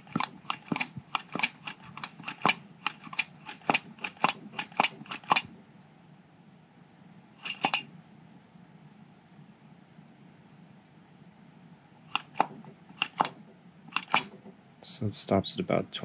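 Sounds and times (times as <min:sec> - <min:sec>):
hand vacuum pump clicking: 0:12.1 - 0:14.4.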